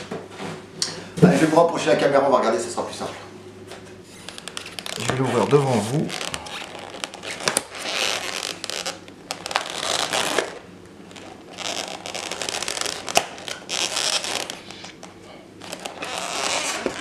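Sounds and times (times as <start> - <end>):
plastic lid creaking and crackling: 4.2 - 15.0, 15.6 - 17.0.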